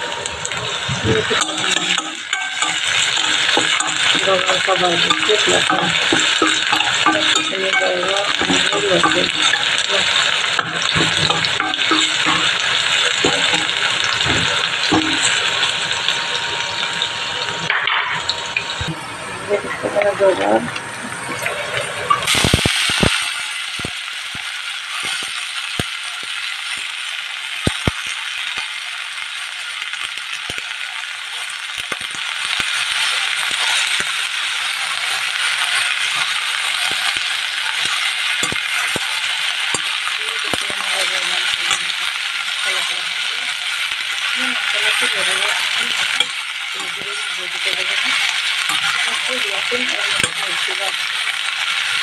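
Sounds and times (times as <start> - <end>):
beans sizzling in oil: 0.0 - 18.9, 21.7 - 52.0
spatula tapping metal pan: 1.3 - 15.6, 35.7 - 40.8.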